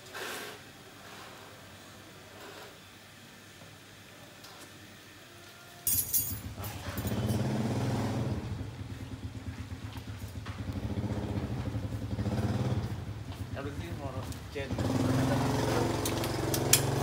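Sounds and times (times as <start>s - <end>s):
motorbike engine running: 6.4s - 17.0s.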